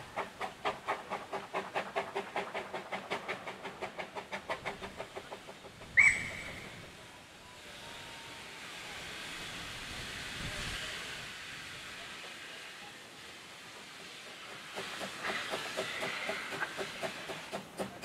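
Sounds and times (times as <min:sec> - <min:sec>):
steam hissing: 0:00.0 - 0:18.0
steam locomotive exhaust beats: 0:00.0 - 0:18.0
short sharp whistle toot: 0:06.0 - 0:06.6.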